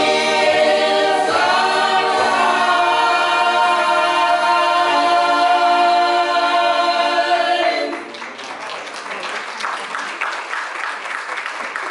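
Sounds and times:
vocal quartet singing gospel: 0.0s - 8.1s
audience applause: 7.9s - 11.9s.

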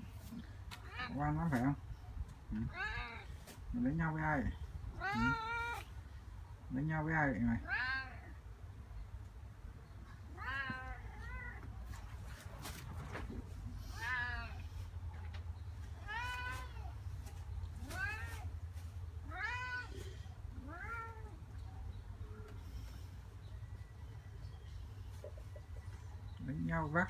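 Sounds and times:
cat meowing: 5.0s - 5.9s, 10.3s - 11.7s, 19.2s - 21.4s.

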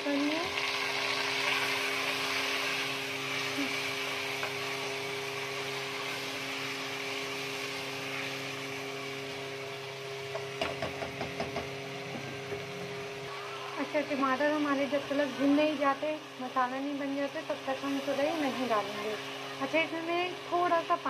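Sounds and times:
food sizzling in a pan: 0.0s - 21.0s
spatula knocking against pan: 10.3s - 11.8s.

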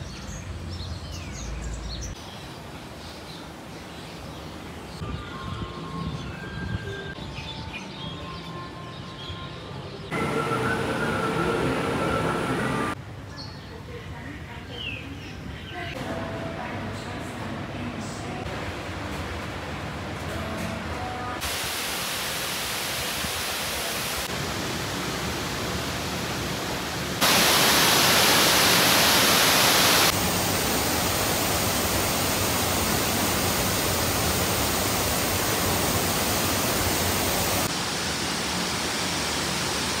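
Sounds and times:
waterfall rushing: 10.1s - 13.0s, 21.4s - 40.0s.

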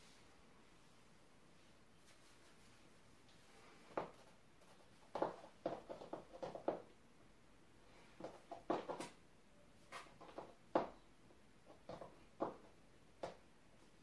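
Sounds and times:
high heels tapping on floor: 5.1s - 6.9s, 8.2s - 9.1s, 11.7s - 13.4s.

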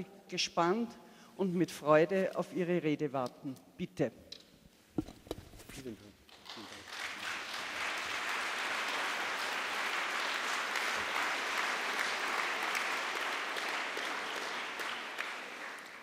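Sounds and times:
audience applauding: 6.3s - 16.0s.

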